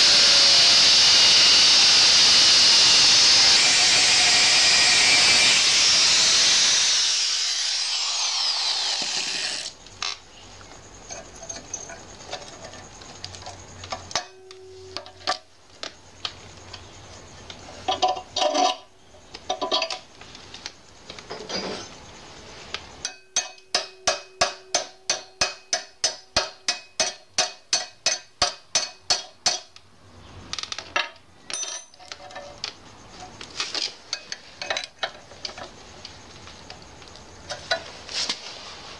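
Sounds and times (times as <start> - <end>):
angle grinder winding down: 0.0 - 9.8.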